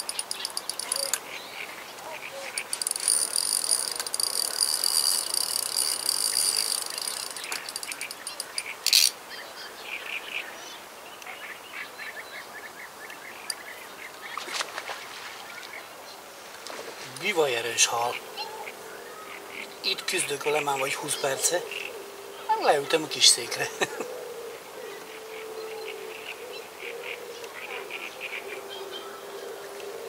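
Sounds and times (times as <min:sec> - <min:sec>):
insects trilling: 0:00.0 - 0:09.2, 0:17.0 - 0:30.0.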